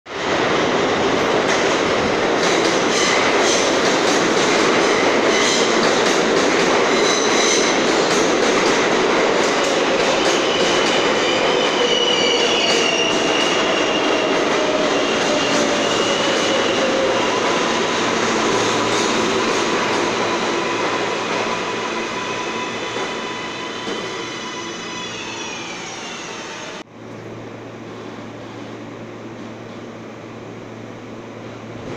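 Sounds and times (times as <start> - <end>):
subway train wheels rumbling: 0.1 - 31.9
high wheel squeal: 9.9 - 18.0, 20.1 - 26.8.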